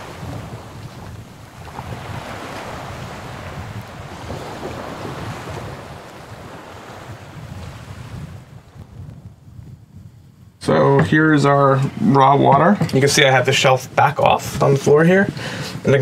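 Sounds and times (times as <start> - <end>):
water splashing and lapping: 0.0 - 9.0
wind gusting over microphone: 0.0 - 16.0.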